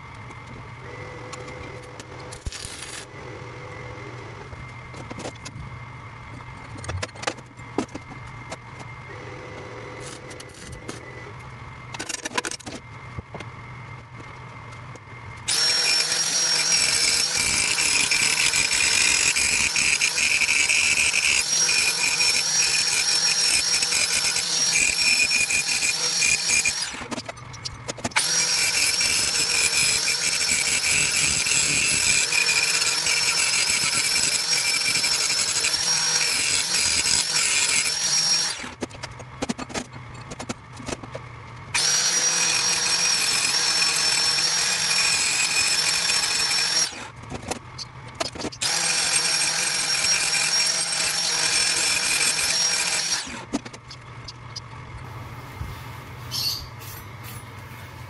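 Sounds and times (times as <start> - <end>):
steady low hum: 0.0 - 21.2, 53.4 - 58.0
angle grinder grinding steel: 2.3 - 3.1, 15.5 - 27.2, 28.1 - 38.8, 41.8 - 47.1.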